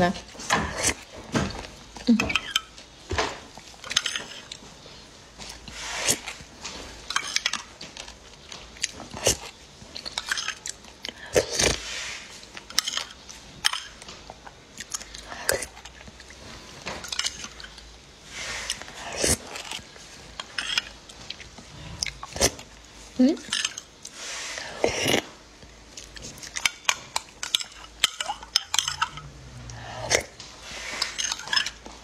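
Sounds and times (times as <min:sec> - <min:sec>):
wet slurping: 0:18.3 - 0:19.8.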